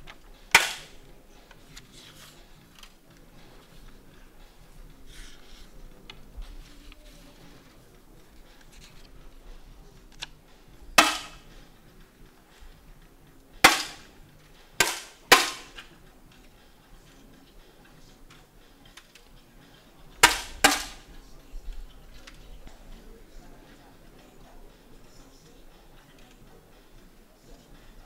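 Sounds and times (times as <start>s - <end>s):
air rifle shots: 0.5s - 1.0s, 11.0s - 11.6s, 13.6s - 14.2s, 14.8s - 15.9s, 20.2s - 21.2s.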